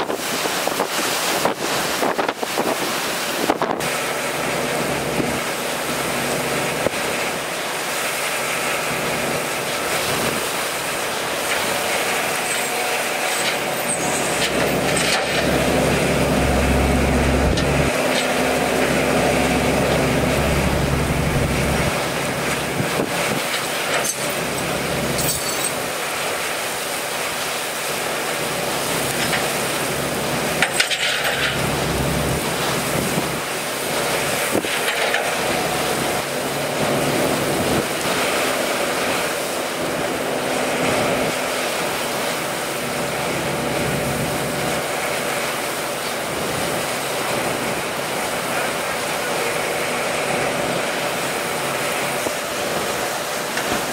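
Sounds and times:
heavy rain: 0.0 - 53.9
wind: 0.0 - 53.9
truck engine running low: 3.4 - 53.9
sharp metallic clinks: 25.2 - 25.8.

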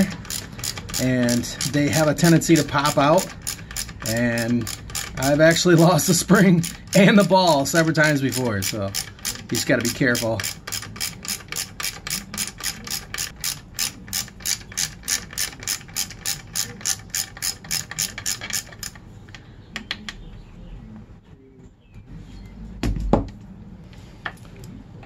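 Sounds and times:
ratchet wrench clicking: 0.0 - 19.0.

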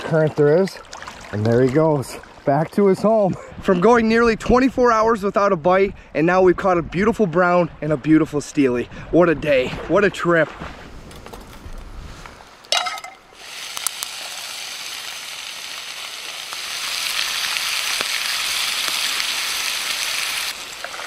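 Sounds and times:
bacon sizzling in a skillet: 12.8 - 21.0.

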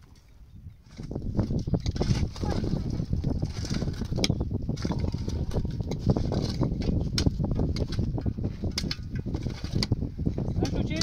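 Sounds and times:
shovel scraping stony earth: 0.8 - 11.0.

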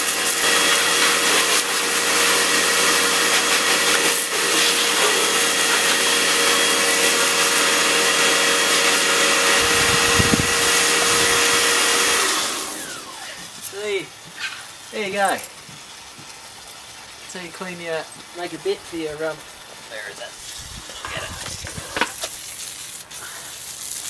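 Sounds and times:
pressure washer motor hum: 0.0 - 15.7
water jet hissing: 0.0 - 24.0.

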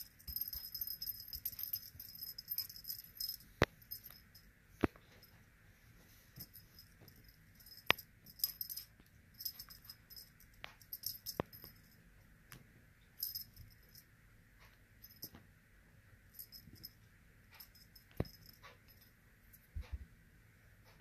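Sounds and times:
jingling rattle shaken: 0.0 - 4.4, 6.4 - 11.9, 13.2 - 14.0, 16.4 - 16.9.

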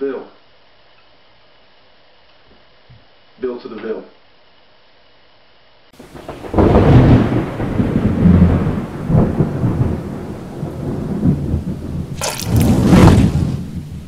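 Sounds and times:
thunder-like rumbling: 6.0 - 14.0
sharp crack: 12.2 - 13.7.

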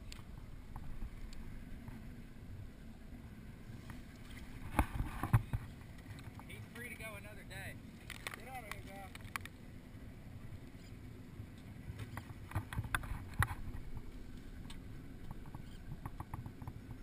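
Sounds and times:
low rumble of wind and water: 0.0 - 17.0
gear clicks and knocks on deck: 14.7 - 17.0.

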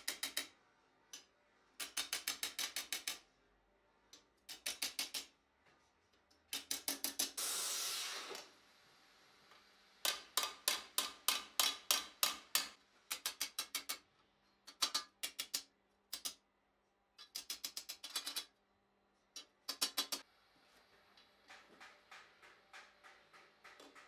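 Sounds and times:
hammer striking hot steel on anvil: 10.0 - 13.9.

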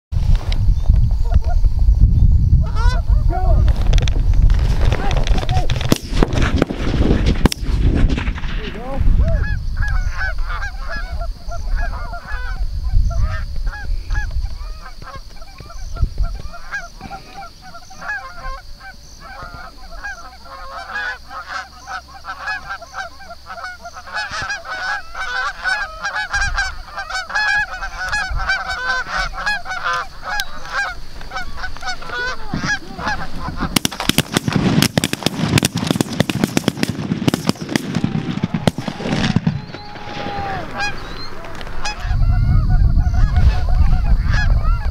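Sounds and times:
geese honking: 2.6 - 3.3, 8.6 - 44.9
shotgun blasts: 5.8 - 9.0, 33.7 - 40.8.

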